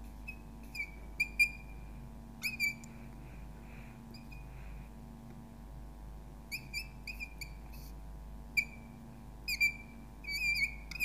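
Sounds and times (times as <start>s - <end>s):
marker squeaking on whiteboard: 9.5s - 11.0s.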